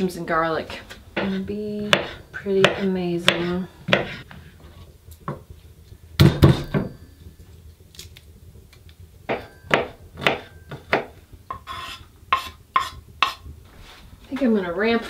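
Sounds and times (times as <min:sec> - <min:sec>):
knife chopping on wooden board: 0:01.2 - 0:04.2, 0:09.3 - 0:13.4.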